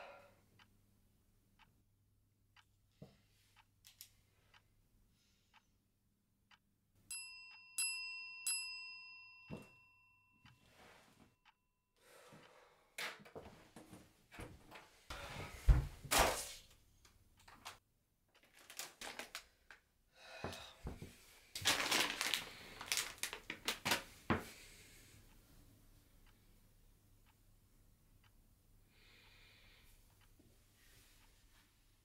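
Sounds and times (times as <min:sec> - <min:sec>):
rustling: 0:21.6 - 0:24.1.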